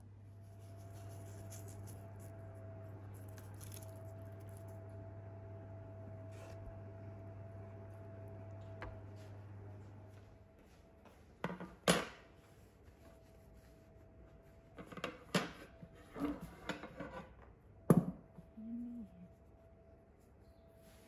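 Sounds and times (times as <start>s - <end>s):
low hum: 0.0s - 10.9s, 18.4s - 21.0s.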